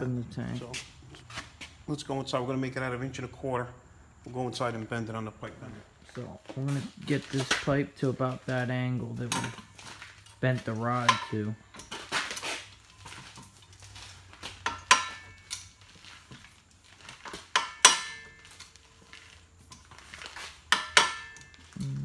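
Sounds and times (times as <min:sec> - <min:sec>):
sharp metal knocks and clinks: 0:09.3 - 0:12.0, 0:14.6 - 0:15.7, 0:17.5 - 0:18.6, 0:20.7 - 0:21.7.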